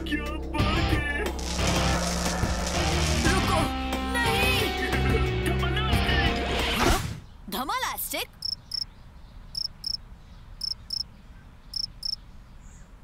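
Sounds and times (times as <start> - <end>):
burst of music and effects: 0.1 - 4.2
cricket chirps: 8.4 - 8.9, 9.5 - 10.0, 10.6 - 11.1, 11.7 - 12.2.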